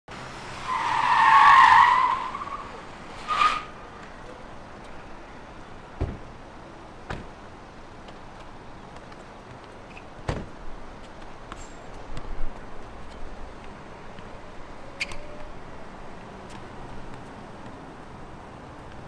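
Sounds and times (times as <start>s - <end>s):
car tyres squealing: 0.5s - 4.0s, 14.9s - 15.6s.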